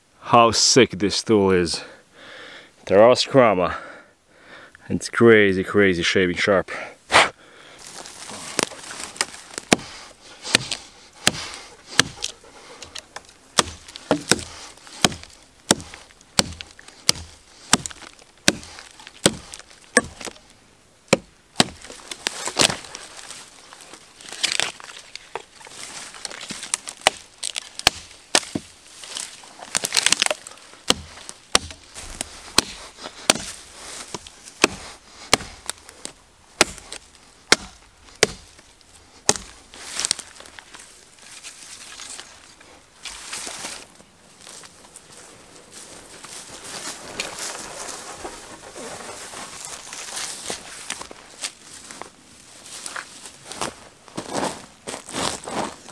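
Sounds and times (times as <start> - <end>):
wood cracking: 7.8 - 44.9
machete chopping wood: 8.5 - 20.4, 21.1 - 22.9, 26.3 - 28.7, 29.7 - 35.8, 36.6 - 38.6, 39.2 - 40.2.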